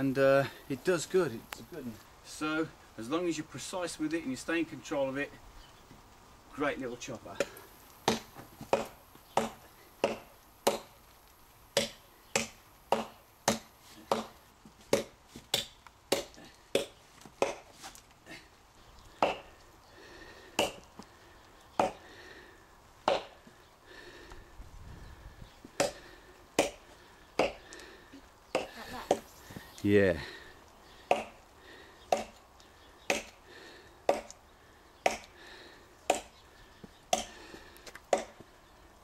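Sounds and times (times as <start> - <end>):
tomahawk chopping into a log: 7.4 - 11.0, 11.8 - 17.7, 20.6 - 20.8, 23.0 - 23.4, 26.6 - 26.8, 31.1 - 31.4, 32.1 - 32.4, 33.1 - 33.4, 34.1 - 34.3, 35.0 - 35.3, 36.1 - 36.3, 38.1 - 38.4.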